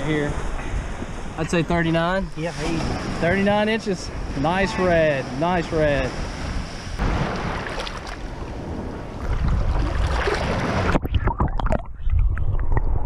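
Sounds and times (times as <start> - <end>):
surf water splashing: 0.0 - 11.4
underwater rumble with gurgling: 7.0 - 13.0.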